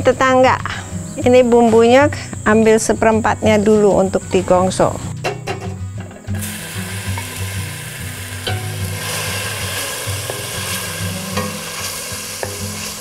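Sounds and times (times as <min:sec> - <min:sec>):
spice paste sizzling in oil: 0:06.4 - 0:13.0.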